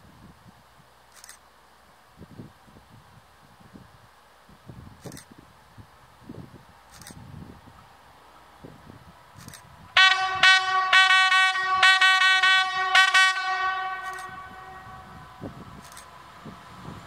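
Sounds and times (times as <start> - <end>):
two-tone train horn toots: 10.0 - 15.5.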